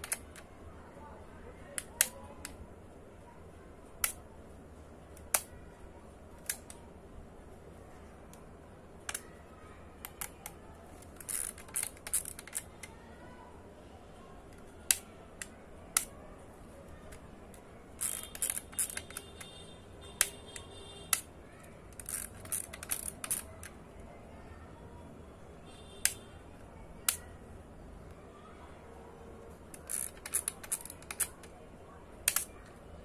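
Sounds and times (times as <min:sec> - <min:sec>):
camera mechanical clicks: 0:18.0 - 0:19.6, 0:29.8 - 0:31.5.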